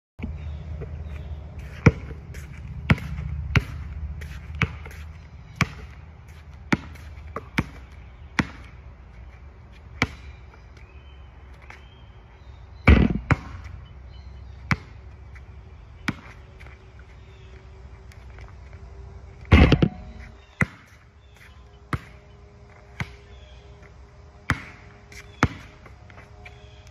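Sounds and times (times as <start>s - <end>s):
basketball bouncing on asphalt: 0.2s - 18.8s, 19.4s - 26.8s.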